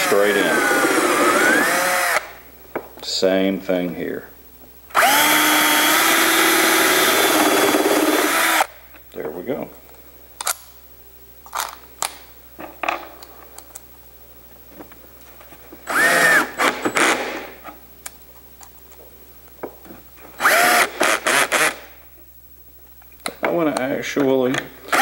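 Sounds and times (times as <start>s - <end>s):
cordless drill running: 0.0s - 2.4s, 4.9s - 8.7s, 15.9s - 17.2s, 20.4s - 21.9s.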